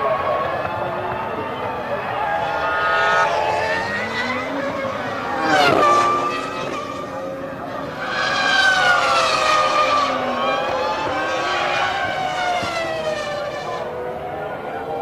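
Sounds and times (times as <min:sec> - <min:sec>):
racing car engine wailing: 0:00.0 - 0:15.0.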